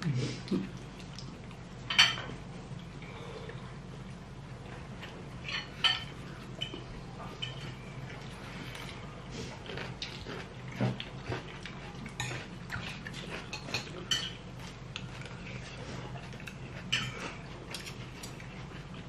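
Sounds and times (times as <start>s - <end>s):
low steady hum: 0.0s - 19.0s
cutlery clinking on plates: 1.9s - 2.3s, 5.4s - 6.8s, 13.4s - 14.4s, 16.5s - 18.4s.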